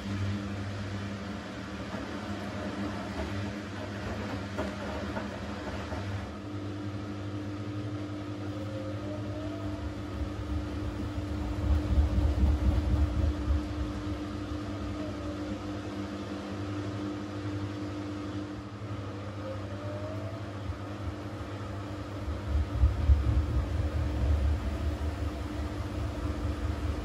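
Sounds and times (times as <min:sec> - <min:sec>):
washing machine motor humming: 0:00.0 - 0:27.0
low rumble: 0:09.8 - 0:14.6, 0:22.2 - 0:27.0.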